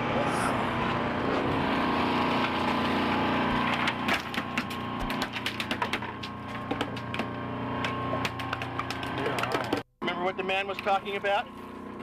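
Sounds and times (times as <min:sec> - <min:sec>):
boat engine running: 0:00.0 - 0:12.0
sharp irregular clicks and knocks: 0:03.8 - 0:09.9.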